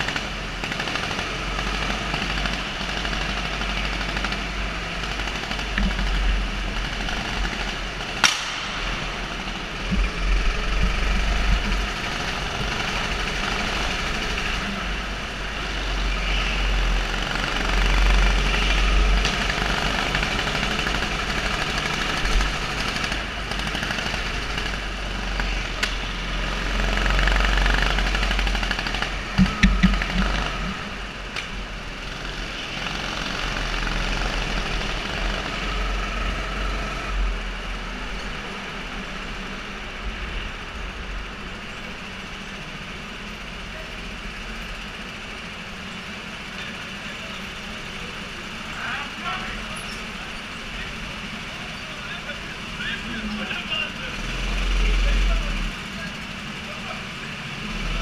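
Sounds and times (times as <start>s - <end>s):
go-kart engine running: 0.0s - 58.0s
sharp knocks: 8.2s - 11.8s, 29.0s - 30.9s.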